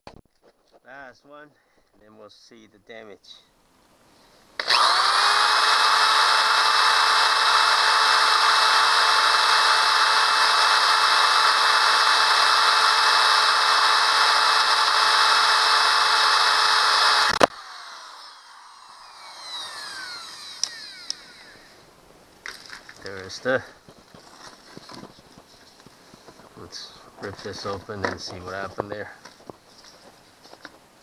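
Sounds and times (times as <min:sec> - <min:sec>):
scraping and rustling: 0:00.1 - 0:00.9, 0:22.1 - 0:30.8
power drill whining: 0:04.6 - 0:21.9.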